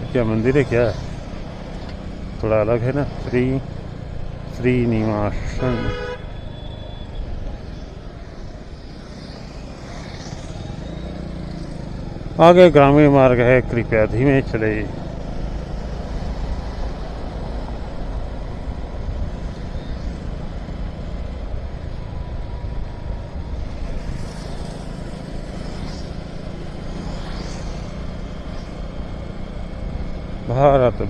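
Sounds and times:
wind and road noise: 0.0s - 31.0s.

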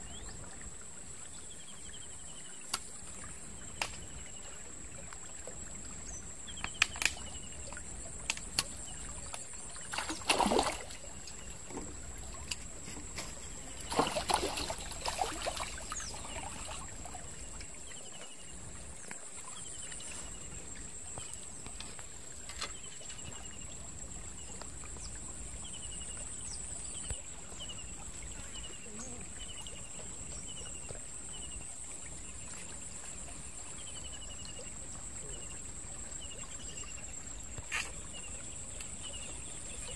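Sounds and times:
fish thrashing and splashing: 9.8s - 17.2s.

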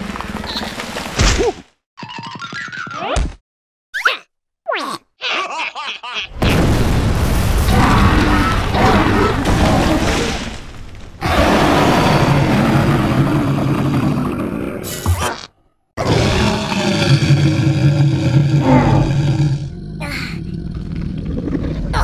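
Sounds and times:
rough rumbling cartoon effect: 11.2s - 14.9s, 16.0s - 22.0s.

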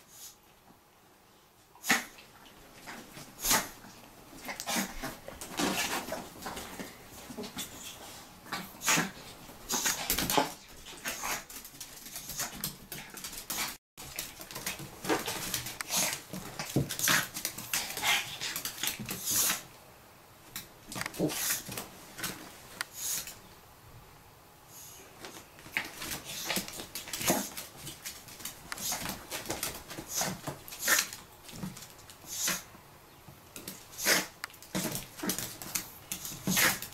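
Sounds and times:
dog sniffing and snorting: 29.9s - 31.2s, 32.2s - 32.7s, 33.9s - 35.4s.

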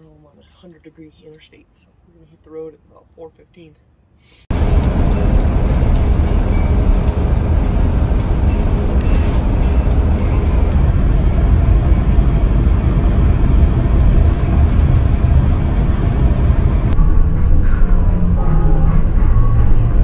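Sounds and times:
motorhome engine rumble: 4.4s - 20.0s
wind noise: 4.5s - 20.0s.

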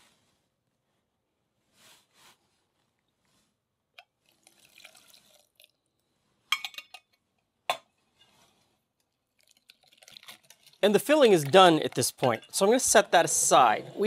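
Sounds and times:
metal clinking against glass bowl: 11.4s - 12.9s.

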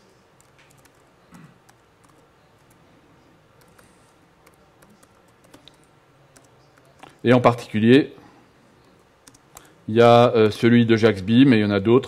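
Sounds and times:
laptop keys clicking: 0.4s - 1.1s, 1.7s - 2.8s, 3.6s - 7.2s, 8.8s - 9.7s.

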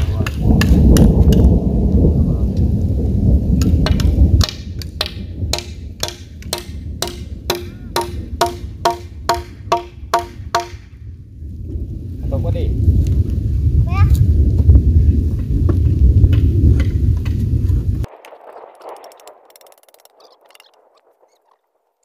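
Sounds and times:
loud low rumble: 0.0s - 19.7s
ringing knocks on wooden post: 5.0s - 10.9s.

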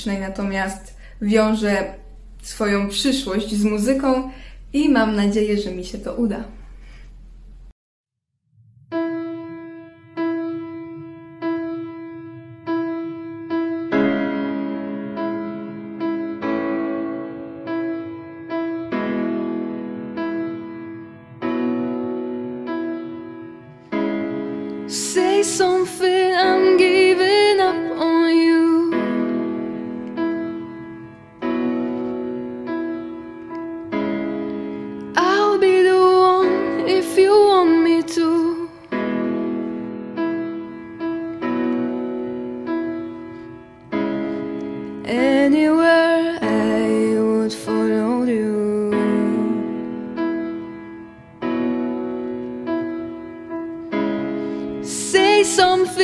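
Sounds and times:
electronic keyboard piano notes: 8.9s - 56.0s
woman singing with vibrato: 24.9s - 29.2s, 35.2s - 38.9s, 45.0s - 49.8s, 54.8s - 56.0s.

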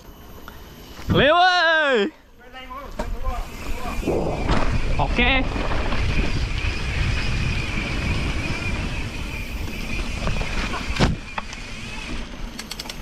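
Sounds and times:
faint high whine: 0.0s - 13.0s
bike tyres rumbling over dirt: 3.0s - 12.5s
wind noise: 3.4s - 12.5s.

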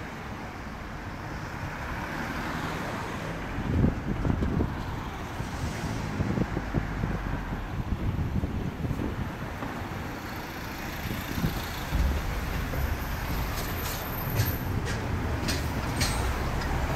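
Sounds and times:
cars driving past: 0.0s - 16.9s.

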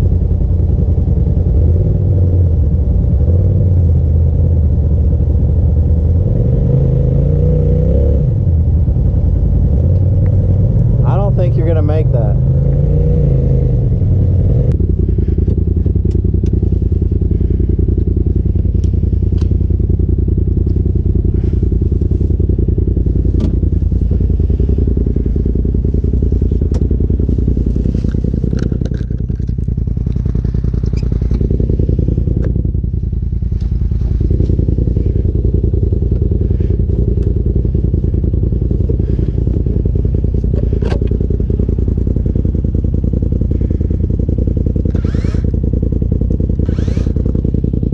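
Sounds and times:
vehicle engine running: 0.0s - 47.9s
sharp clicks and knocks: 28.0s - 30.2s.

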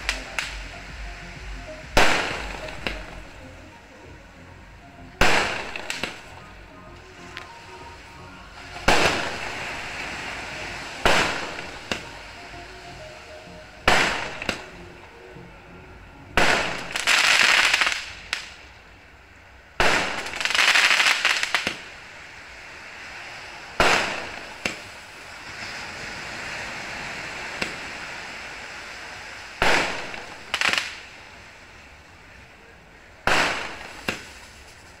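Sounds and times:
dense firework crackling: 0.0s - 3.3s, 5.2s - 6.4s, 8.6s - 12.2s, 16.4s - 18.8s, 19.8s - 31.6s, 33.2s - 35.0s
fireworks bangs: 1.8s - 3.3s, 5.2s - 6.4s, 8.7s - 10.1s, 11.0s - 12.2s, 13.9s - 14.7s, 16.4s - 18.6s, 19.8s - 21.9s, 23.8s - 25.0s, 29.6s - 31.0s, 33.2s - 35.0s.

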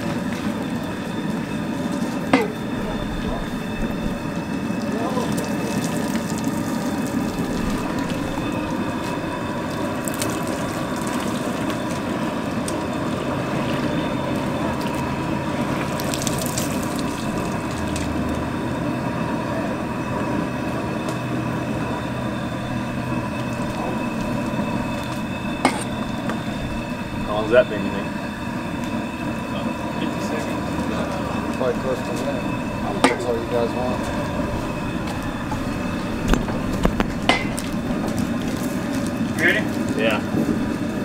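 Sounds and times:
water pouring and splashing: 4.0s - 13.0s, 14.6s - 18.4s.

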